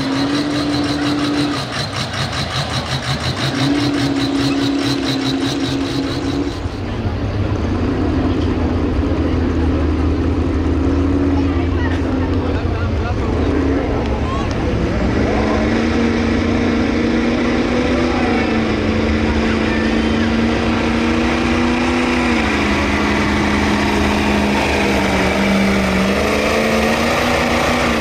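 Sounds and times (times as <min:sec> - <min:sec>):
pickup engine at high revs: 0:00.0 - 0:28.0.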